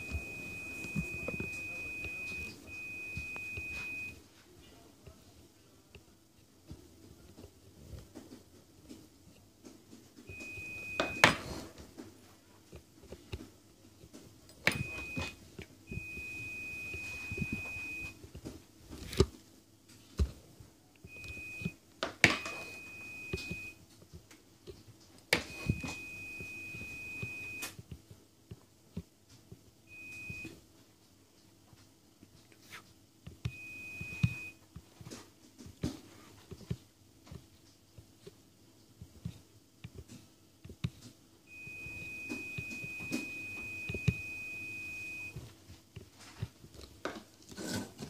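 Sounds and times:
electronic beep tone: 0.0s - 4.2s.

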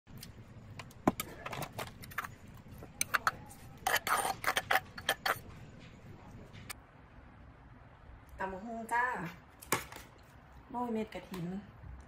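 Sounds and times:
metal spoon scraping in mortar: 3.0s - 5.5s.

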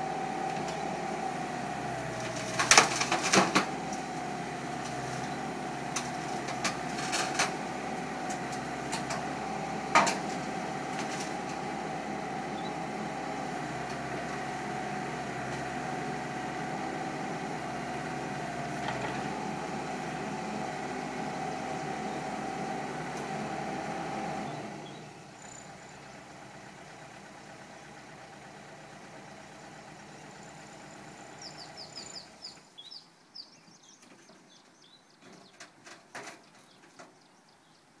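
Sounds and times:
diesel engine running: 0.0s - 32.9s
birds chirping: 4.4s - 7.0s, 10.4s - 15.3s, 21.6s - 22.4s, 24.4s - 25.2s, 25.9s - 38.0s.

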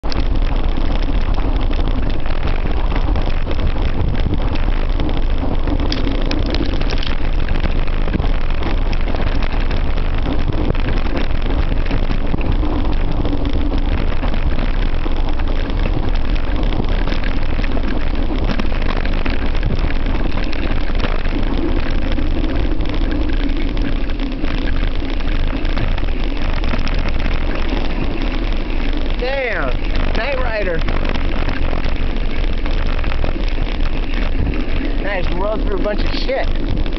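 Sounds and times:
off-road vehicle engine running: 0.0s - 36.9s.

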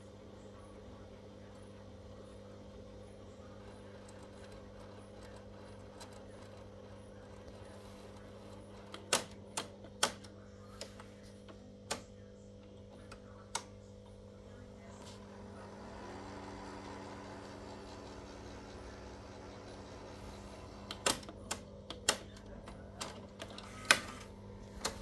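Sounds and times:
faint motor hum: 0.0s - 25.0s
video recorder winding tape: 1.6s - 25.0s
mechanical clicks and clunks: 7.4s - 12.0s, 15.9s - 25.0s.

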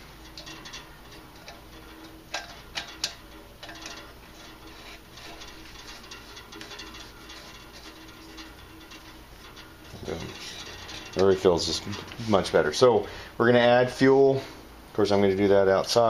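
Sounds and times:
metallic clicks of threading: 0.2s - 12.2s.

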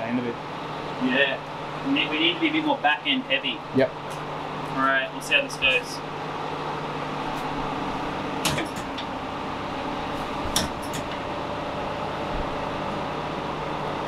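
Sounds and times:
mechanical hum: 0.0s - 14.0s.

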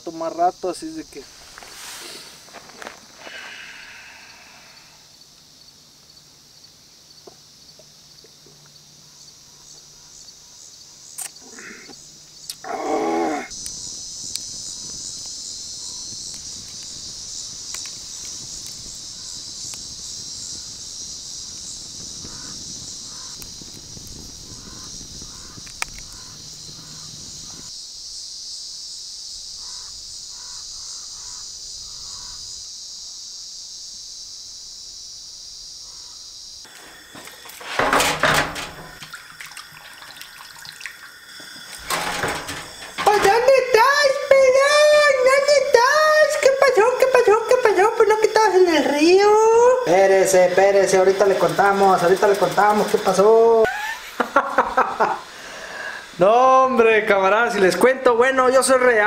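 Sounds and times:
insects buzzing: 0.0s - 59.0s
bird calls: 22.2s - 23.5s, 24.4s - 27.7s, 29.6s - 32.6s.

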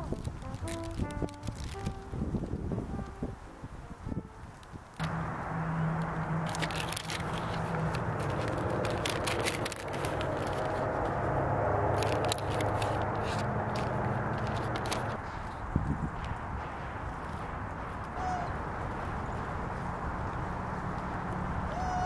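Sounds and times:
plastic packet crinkling: 0.0s - 2.1s, 6.4s - 11.0s, 11.9s - 15.2s
sharp plastic crackles: 0.0s - 3.3s, 4.4s - 5.2s, 6.0s - 21.2s.

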